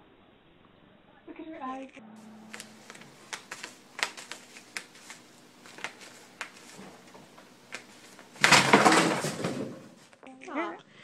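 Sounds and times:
cat scratching a mat: 2.4s - 10.1s.

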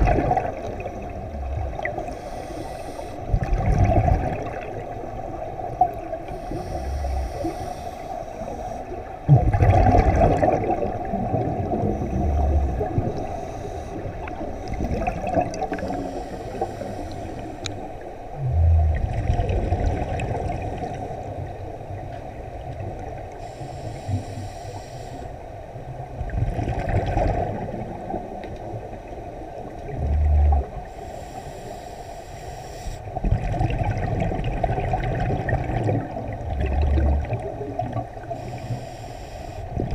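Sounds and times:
exhaled bubbles from regulator: 0.0s - 7.6s, 8.9s - 17.2s, 18.3s - 21.4s, 26.2s - 28.4s, 29.7s - 30.9s, 33.0s - 38.7s
muffled rush of water: 0.0s - 39.9s.

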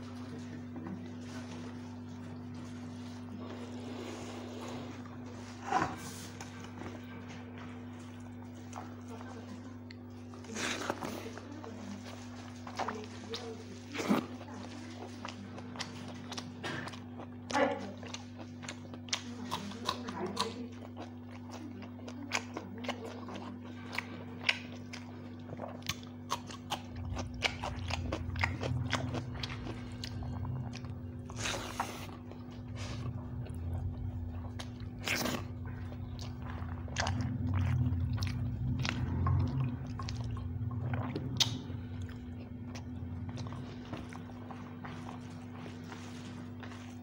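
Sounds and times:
chewing and crunching: 0.0s - 47.0s.

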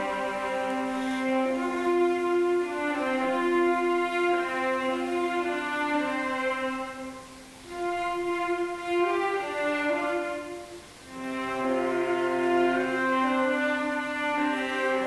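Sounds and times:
cello and strings long bowed notes: 0.0s - 15.0s.

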